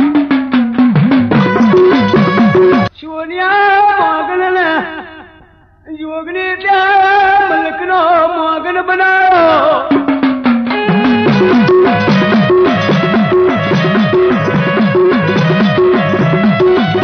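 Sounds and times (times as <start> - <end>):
drum-backed music: 0.0 - 2.9, 9.3 - 17.0
man singing long phrases: 3.0 - 9.9.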